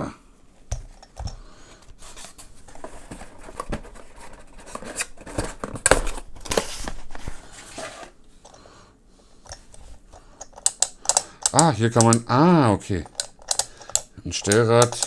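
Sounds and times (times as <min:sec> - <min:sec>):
cardboard box rustling and scraping: 0:06.5 - 0:08.2.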